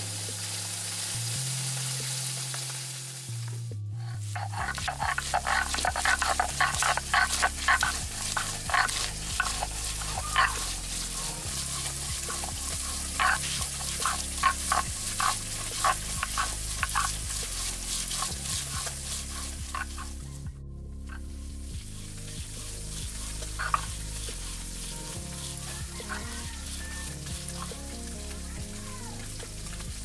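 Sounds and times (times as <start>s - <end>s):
stone grinding on grinding stone: 4.4s - 20.2s.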